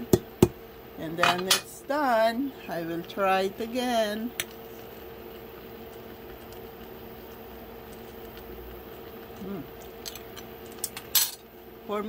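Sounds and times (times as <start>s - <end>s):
soup simmering in a pan: 3.6s - 10.6s.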